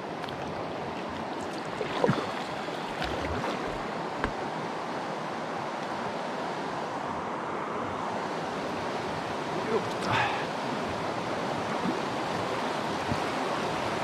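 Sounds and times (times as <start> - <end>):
paddle strokes in water: 0.0 - 4.6
river water rushing: 0.0 - 14.0.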